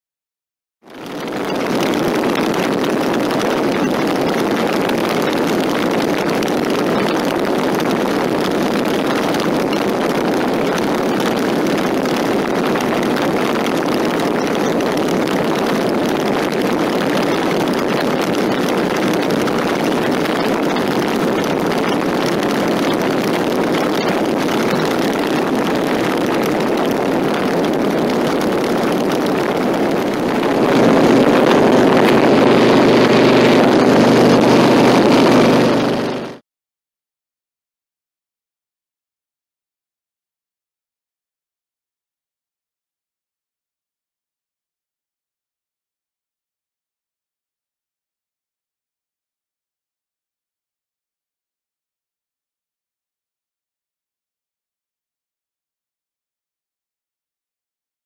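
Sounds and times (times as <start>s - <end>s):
wind rushing over microphone: 1.0s - 36.4s
motorcycle engine: 16.8s - 36.4s.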